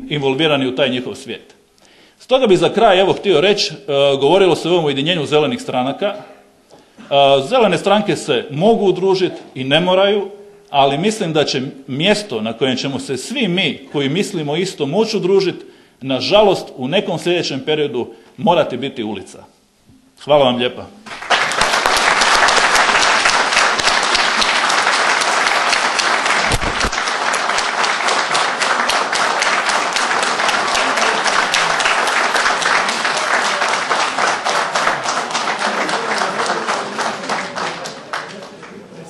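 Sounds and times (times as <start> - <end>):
audience applauding: 21.0 - 38.9.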